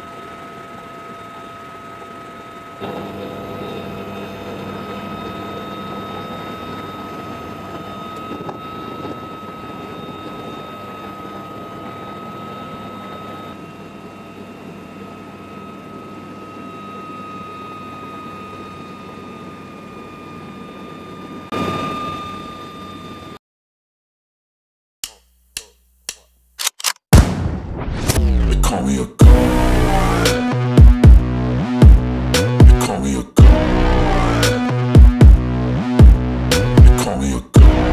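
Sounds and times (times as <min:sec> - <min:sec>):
helicopter rotor and engine noise: 0:00.0 - 0:23.4
high engine whine: 0:00.0 - 0:23.4, 0:27.8 - 0:37.9.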